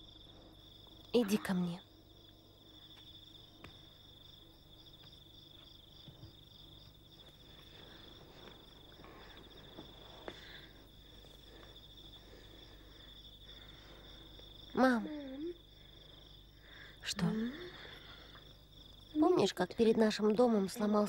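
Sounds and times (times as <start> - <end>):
crickets chirping: 0.0 - 21.0.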